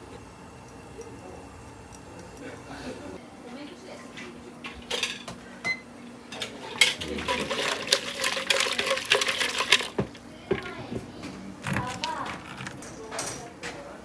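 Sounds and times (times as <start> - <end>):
tongs rattling against plastic jug: 6.4 - 10.8, 11.6 - 12.9
liquid sloshing: 6.4 - 10.9.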